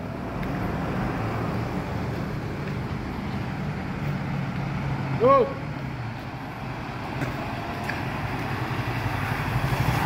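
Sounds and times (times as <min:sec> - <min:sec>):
low engine hum: 0:00.0 - 0:10.0
car driving past: 0:06.4 - 0:10.0.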